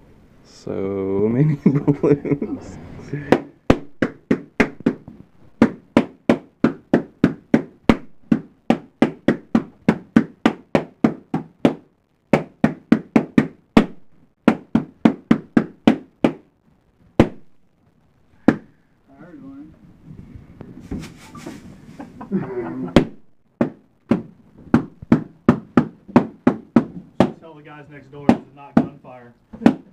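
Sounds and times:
balloons popping: 3.3 - 17.6, 22.9 - 27.5, 28.2 - 29.9.

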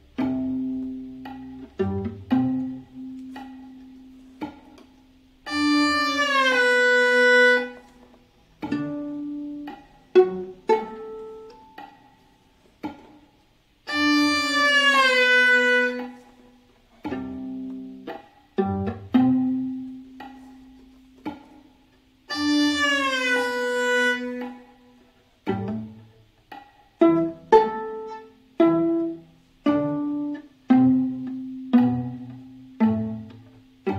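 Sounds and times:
viola bowed sliding phrases: 0.0 - 33.9
viola plucked notes: 0.0 - 33.9.

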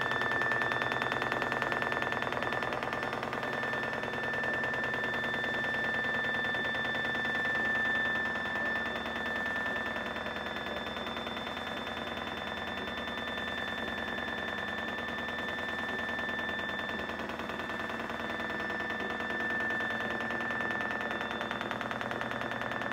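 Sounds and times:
lift motor whining and rattling: 0.0 - 22.9.

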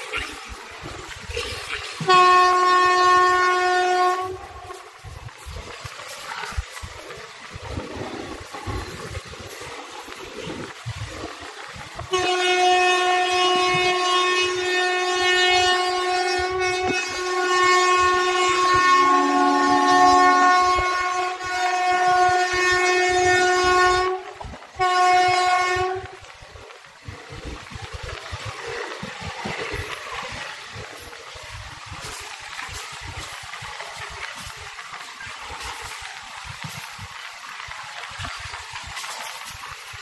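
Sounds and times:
train running noise: 0.0 - 40.0
locomotive air horn blast: 0.8 - 5.0, 11.9 - 26.3.

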